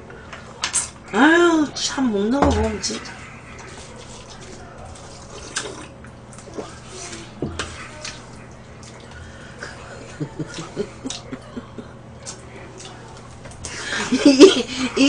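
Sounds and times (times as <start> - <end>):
slurping and chewing noodles: 3.0 - 11.3.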